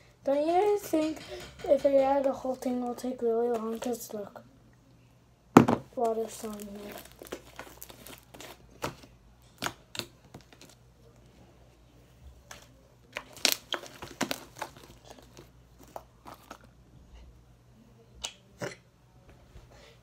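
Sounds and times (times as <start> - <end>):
slime squelching by hand: 6.0 - 10.8.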